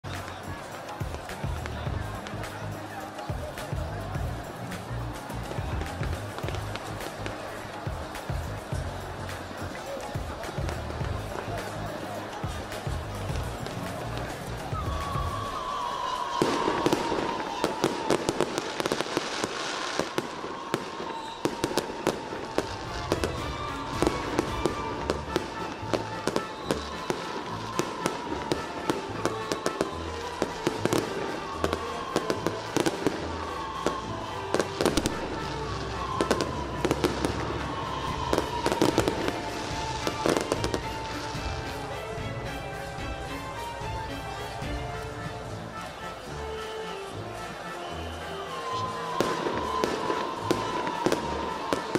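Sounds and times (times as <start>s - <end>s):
firecrackers banging: 0.1s - 51.9s.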